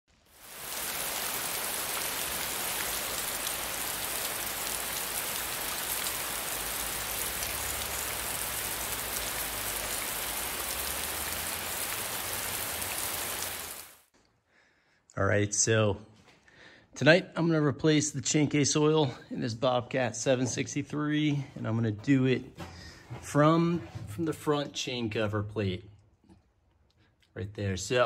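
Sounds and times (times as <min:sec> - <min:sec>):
rain on wet pavement: 0:00.1 - 0:14.1.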